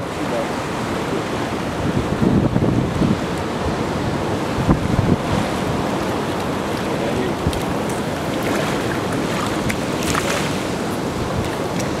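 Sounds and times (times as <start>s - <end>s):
surf breaking on rocks: 3.7s - 12.0s.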